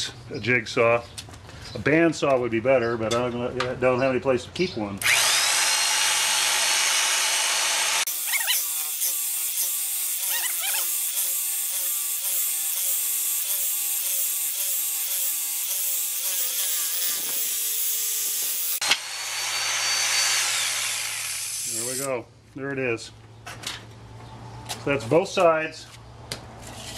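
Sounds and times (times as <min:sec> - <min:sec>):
electric jigsaw sawing wood: 0:05.0 - 0:22.1.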